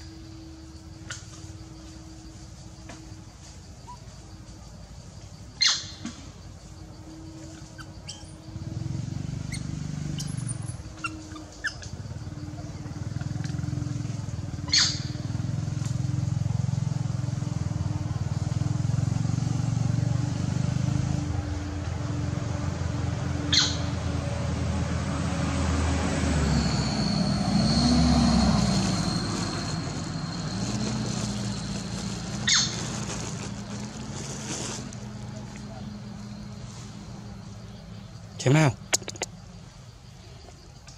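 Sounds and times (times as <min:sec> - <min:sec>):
motor engine running: 0:11.8 - 0:19.8
thin high whine: 0:26.4 - 0:32.3.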